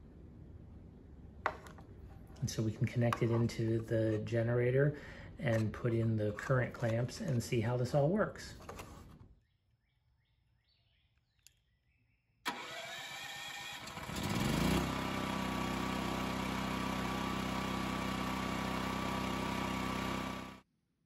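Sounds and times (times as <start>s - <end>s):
generator engine starting and running: 12.5s - 20.6s.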